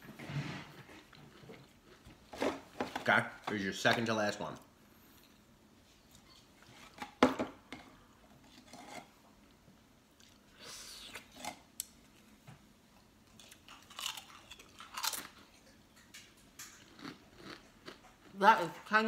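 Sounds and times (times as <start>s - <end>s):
potato chip crunch: 13.3s - 15.6s, 16.6s - 18.4s.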